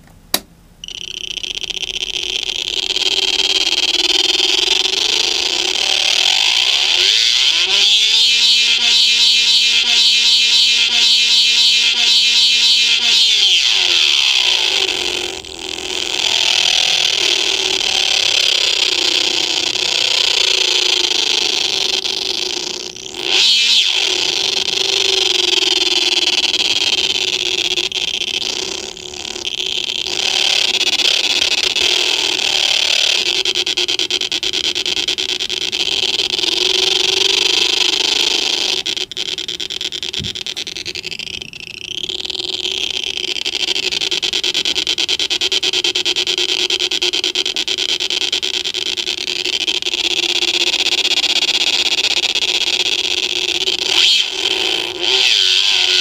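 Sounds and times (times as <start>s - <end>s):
electronic toy drone: 0.8s - 56.0s.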